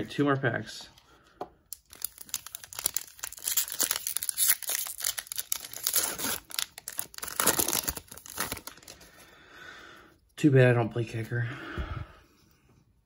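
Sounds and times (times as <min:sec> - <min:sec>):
foil wrapper crinkling and ripping: 0:01.7 - 0:09.1.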